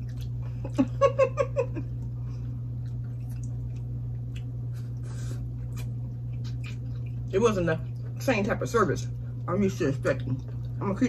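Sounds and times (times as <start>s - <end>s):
chewing and lip-smacking: 0.0s - 1.0s, 1.9s - 8.3s, 9.1s - 10.8s
steady low hum: 0.0s - 11.0s.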